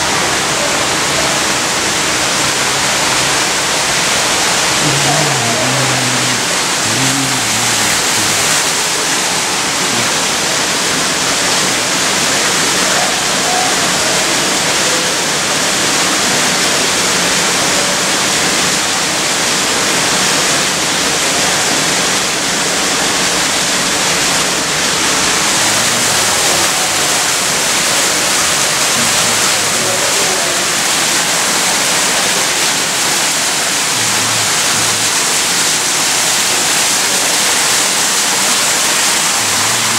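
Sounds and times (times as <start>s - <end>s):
faint voices: 0.0s - 11.5s, 24.8s - 39.9s
waterfall splashing over rocks: 0.0s - 39.9s.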